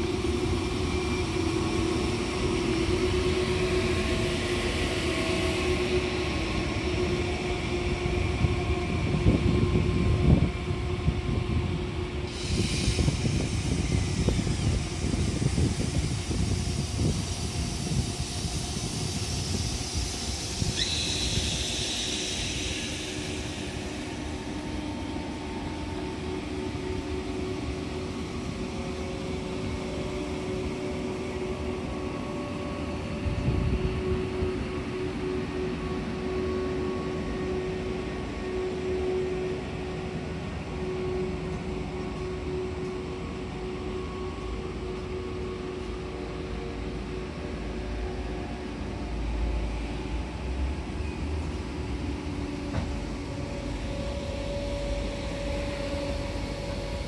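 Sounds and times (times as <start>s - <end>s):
electric train humming: 0.0s - 57.0s
low train rumble: 0.0s - 57.0s.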